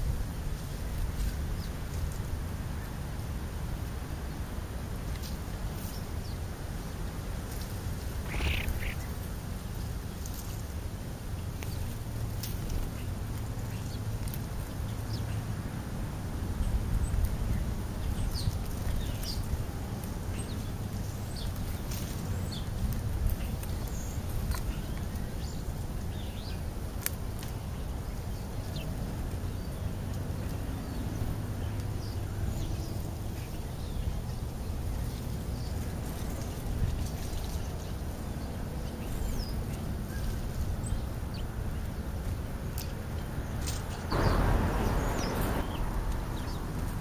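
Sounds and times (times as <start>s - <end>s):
low background rumble: 0.0s - 47.0s
birds chirping: 7.8s - 10.7s, 16.5s - 47.0s.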